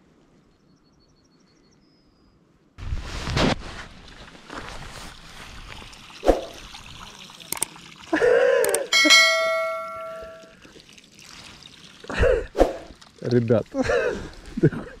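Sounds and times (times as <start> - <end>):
water splashing and dribbling: 3.6 - 15.0
ringing metallic strike: 8.9 - 10.5.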